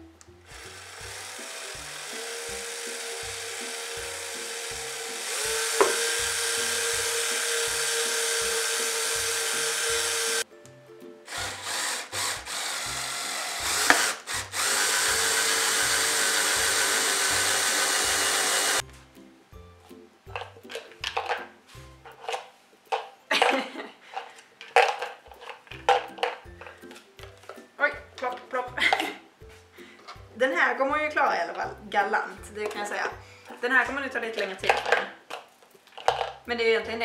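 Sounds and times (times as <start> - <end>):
background music with steady beat: 0.0 - 37.0
cordless drill boring into wood: 0.5 - 10.4, 11.3 - 18.8.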